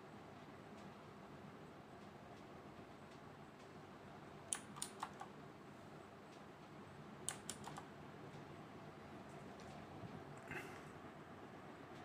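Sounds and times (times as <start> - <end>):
mechanical keyboard keys clicking: 4.5 - 5.3, 7.3 - 7.8.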